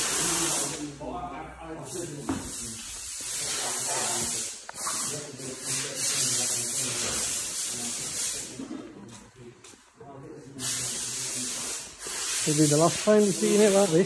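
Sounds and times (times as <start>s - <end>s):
loud hiss of escaping air: 0.0s - 0.9s, 1.8s - 8.5s, 10.6s - 14.0s.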